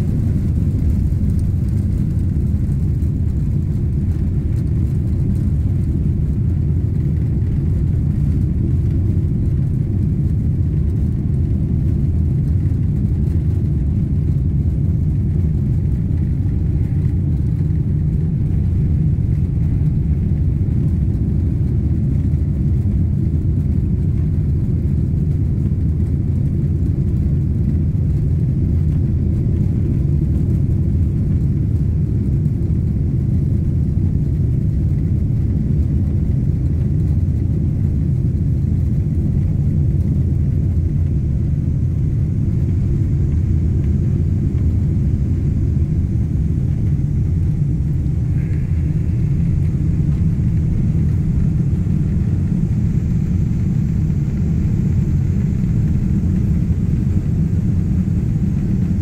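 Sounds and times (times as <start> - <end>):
airplane cabin engine rumble: 0.0 - 59.0
rushing air: 41.6 - 59.0.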